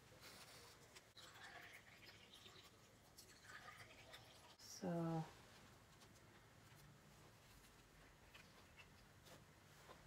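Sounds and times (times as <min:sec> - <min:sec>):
soft rustles: 0:00.0 - 0:01.2, 0:05.3 - 0:10.0.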